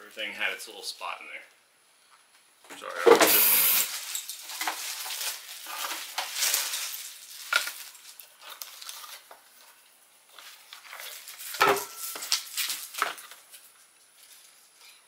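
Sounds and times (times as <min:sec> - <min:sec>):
plastic packaging crinkling: 0:03.4 - 0:15.0.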